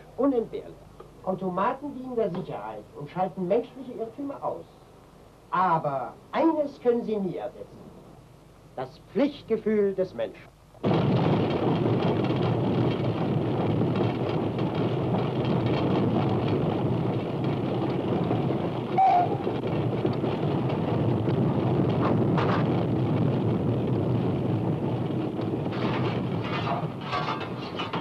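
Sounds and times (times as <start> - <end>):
train running at speed: 10.9 - 28.0.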